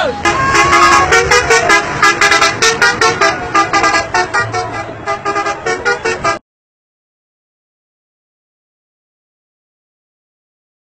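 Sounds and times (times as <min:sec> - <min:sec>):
vehicle horn playing a tune: 0:00.1 - 0:06.4.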